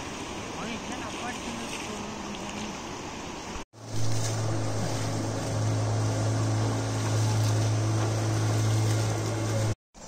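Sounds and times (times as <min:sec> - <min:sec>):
motorboat engine running: 0:03.8 - 0:09.8.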